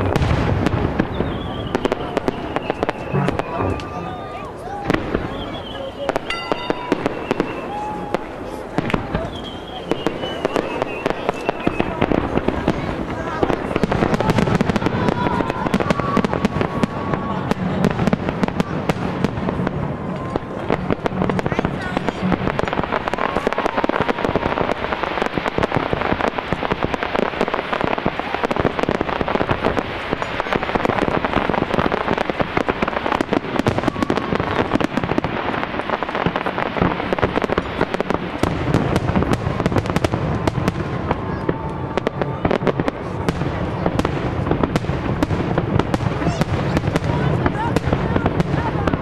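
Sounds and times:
fireworks crackling: 0.0s - 49.0s.

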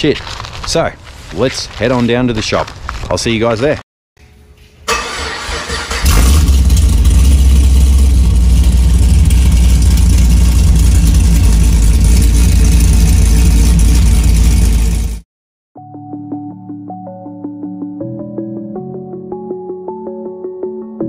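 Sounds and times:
engine deep rumble: 5.9s - 15.2s.

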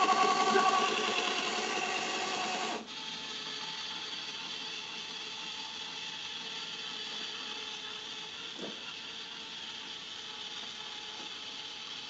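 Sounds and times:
motors whining: 0.0s - 7.5s
faint mechanical whirring: 0.0s - 12.0s.

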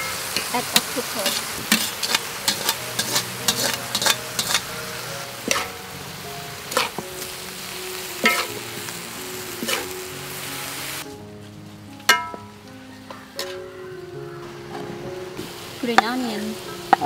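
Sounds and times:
metal spatula scraping a wok: 0.0s - 5.9s, 6.6s - 7.0s, 8.2s - 8.6s, 9.6s - 10.0s
food sizzling in a wok: 0.0s - 14.6s, 15.4s - 17.0s.

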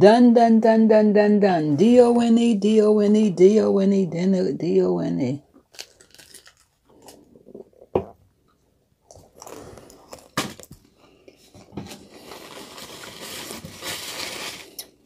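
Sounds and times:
paper wrapper rustling: 5.7s - 7.3s, 11.7s - 15.0s.

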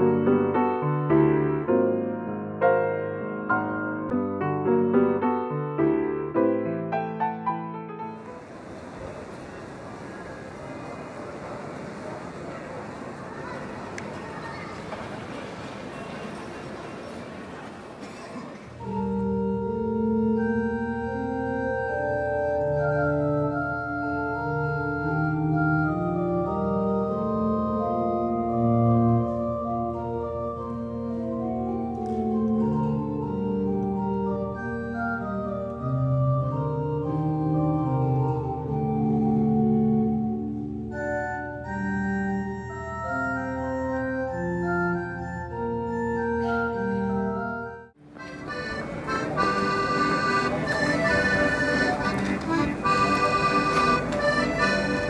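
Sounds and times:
organ chords: 0.0s - 10.6s, 18.8s - 55.0s
low organ pedal note: 18.8s - 47.9s.

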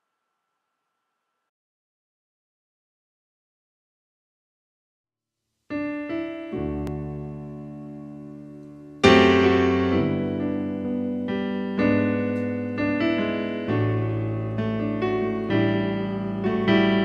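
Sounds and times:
solo piano playing: 5.7s - 17.0s.

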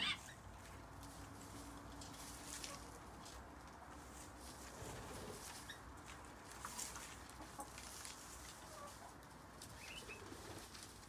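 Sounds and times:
chickens clucking: 5.0s - 10.9s
bird chirps: 9.8s - 10.2s.

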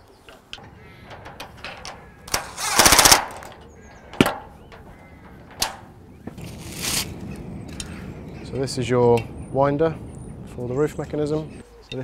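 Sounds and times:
impact driver rattling burst: 2.3s - 3.5s.

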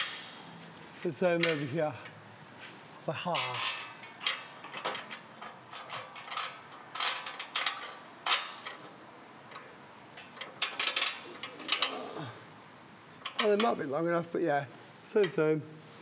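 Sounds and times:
metal bolts and plate clinking: 0.0s - 0.4s, 1.4s - 1.8s, 3.3s - 12.1s, 13.2s - 13.8s.

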